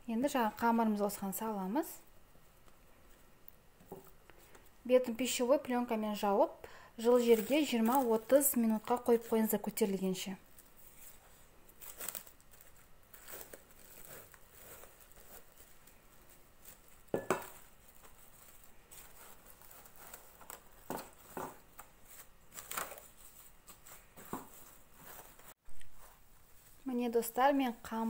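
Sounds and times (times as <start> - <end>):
cling film crinkling: 7.1 - 25.6.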